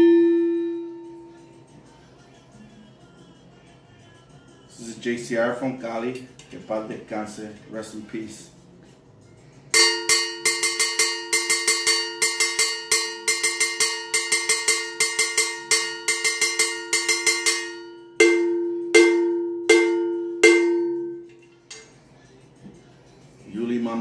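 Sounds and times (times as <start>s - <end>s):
cowbell struck with stick: 9.8s - 21.4s.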